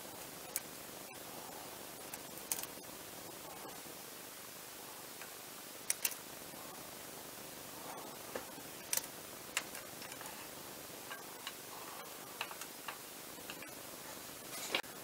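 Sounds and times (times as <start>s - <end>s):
faint hiss: 0.0s - 15.0s
small clicks and taps: 2.1s - 2.8s, 5.2s - 6.2s, 8.3s - 10.3s, 12.4s - 13.8s.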